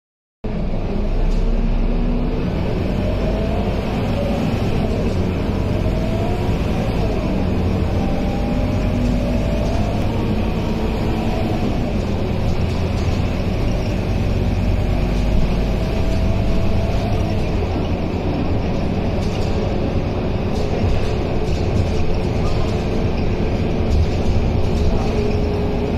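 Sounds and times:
bus diesel engine running: 0.5 - 25.9
road and body noise: 0.5 - 25.9.

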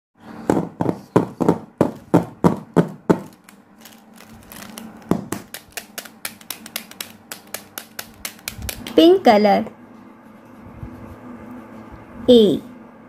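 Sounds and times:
plastic pens tapping on desk: 0.5 - 9.0.

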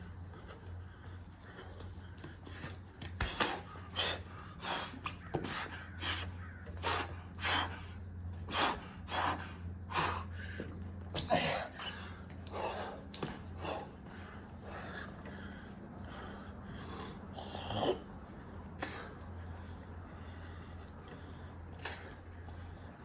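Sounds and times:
man gasping breaths: 0.0 - 23.0.

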